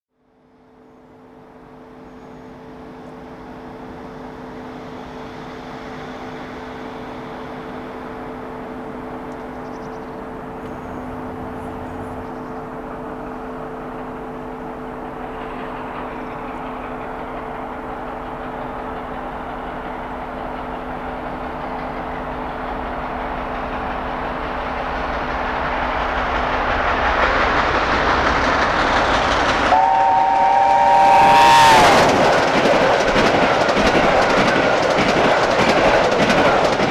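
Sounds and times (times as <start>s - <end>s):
steam locomotive rumble: 0.4s - 36.9s.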